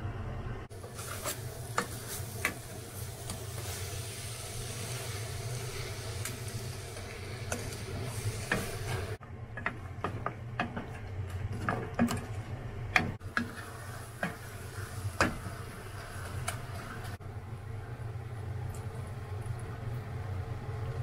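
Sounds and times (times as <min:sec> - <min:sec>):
spatula scraping and knocking pot: 0:07.5 - 0:15.6.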